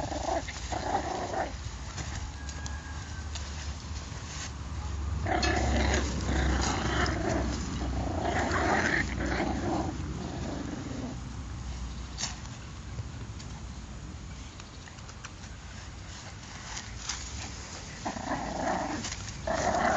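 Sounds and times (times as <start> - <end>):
puppies play-growling: 0.0 - 2.2, 5.1 - 11.3, 16.4 - 19.9.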